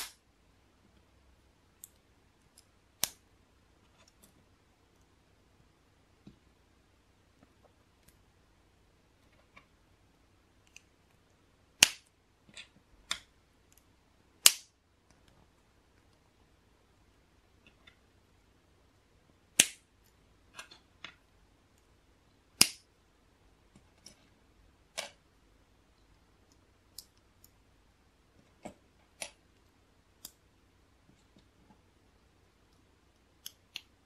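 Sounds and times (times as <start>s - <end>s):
plastic pieces snapping together: 11.8s - 14.7s, 19.6s - 19.9s, 22.6s - 22.9s.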